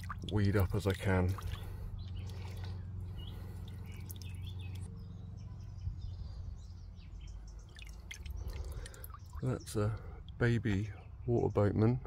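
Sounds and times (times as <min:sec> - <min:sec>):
water dripping and splashing: 0:00.0 - 0:02.8, 0:03.4 - 0:04.9, 0:07.7 - 0:10.4
steady low rumble: 0:00.0 - 0:11.3
faint bird chirps: 0:01.4 - 0:11.5.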